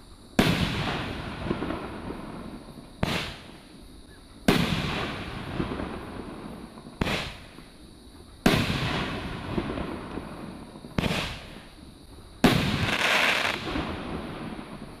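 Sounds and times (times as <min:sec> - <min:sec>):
firework crackle: 0:00.0 - 0:03.7, 0:04.4 - 0:07.8, 0:08.4 - 0:15.0
firework bangs: 0:00.4 - 0:03.7, 0:04.4 - 0:07.7, 0:08.4 - 0:11.8, 0:12.4 - 0:15.0.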